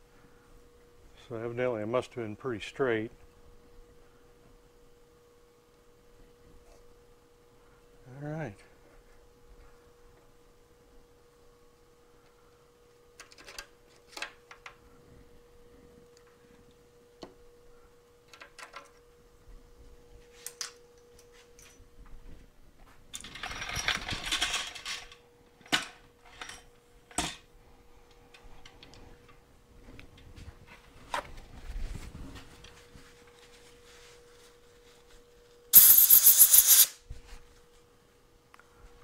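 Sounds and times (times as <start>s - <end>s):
faint steady hum: 0.0s - 23.2s
hissing burst: 35.8s - 37.0s
metal tools clicking: 35.8s - 37.0s.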